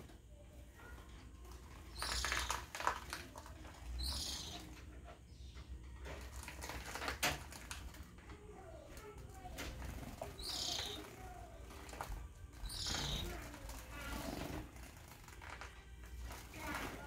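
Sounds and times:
birds splashing and fluttering: 0:01.4 - 0:05.1, 0:05.9 - 0:17.0.

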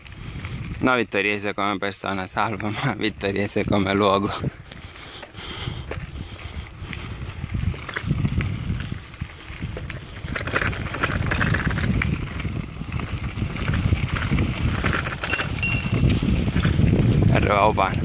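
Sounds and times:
wind on microphone: 0:00.0 - 0:01.0, 0:02.8 - 0:18.0
bicycle tyres crunching on gravel: 0:00.0 - 0:18.0.

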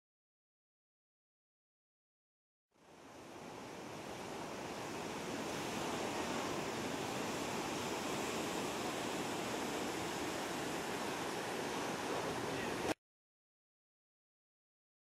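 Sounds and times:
ocean surf breaking: 0:02.8 - 0:13.0.

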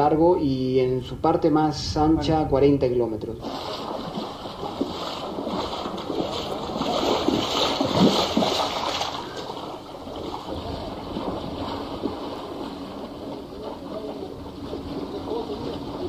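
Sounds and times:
people wading through water: 0:03.4 - 0:16.0.

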